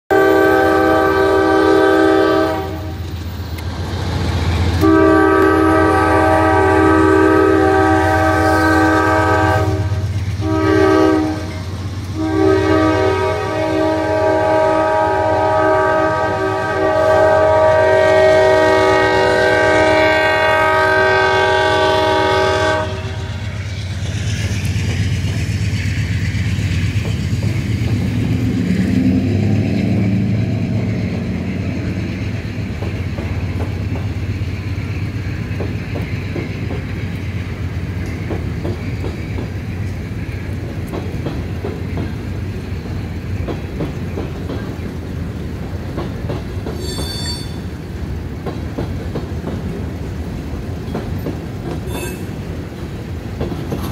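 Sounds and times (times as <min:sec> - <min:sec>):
locomotive air horn blasts: 0:00.1 - 0:03.0, 0:04.8 - 0:11.6, 0:12.2 - 0:23.5
train cars rumbling past: 0:00.1 - 0:53.9.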